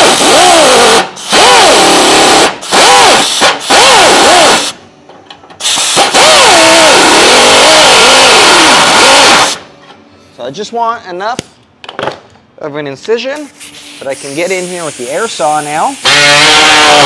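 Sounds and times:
cut-off tool cutting sheet metal: 0:16.0 - 0:17.0.

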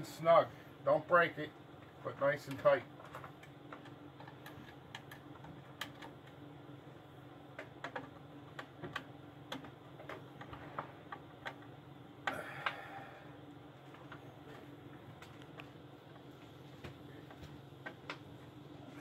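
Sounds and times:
low steady hum: 0:00.0 - 0:19.0.

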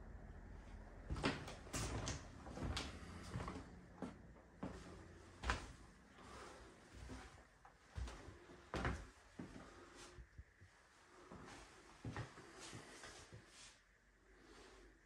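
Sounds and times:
footsteps on wooden floorboards: 0:01.1 - 0:09.7.

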